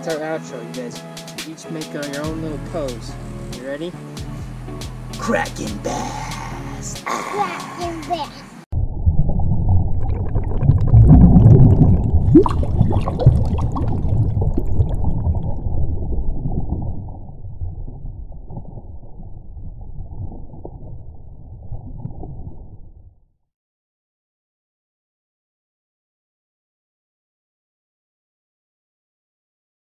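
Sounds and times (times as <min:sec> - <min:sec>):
gurgling bubbles: 0:08.8 - 0:22.8.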